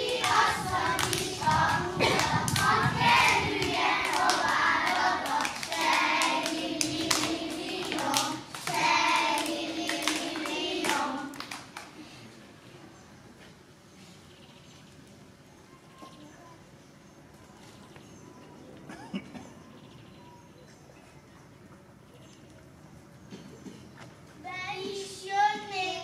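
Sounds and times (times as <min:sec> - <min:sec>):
children singing: 0:00.0 - 0:11.4
hands clapping: 0:00.0 - 0:11.9.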